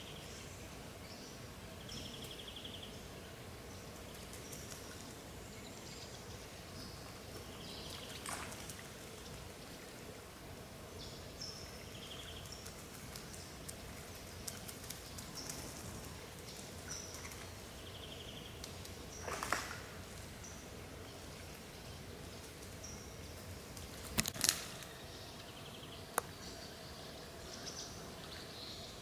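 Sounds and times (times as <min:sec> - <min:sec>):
water splashing and dripping: 0:07.9 - 0:09.8.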